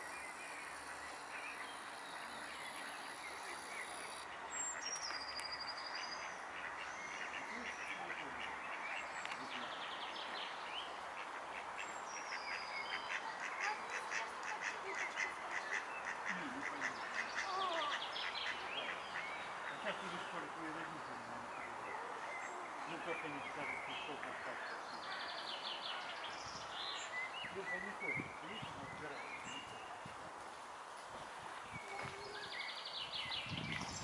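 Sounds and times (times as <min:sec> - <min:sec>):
ducks quacking: 0:06.6 - 0:09.0, 0:12.9 - 0:20.3.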